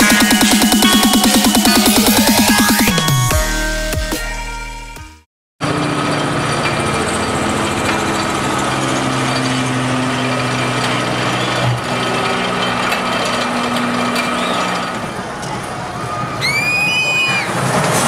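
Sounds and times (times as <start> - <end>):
roller coaster chain lift rattling: 5.6 - 18.0.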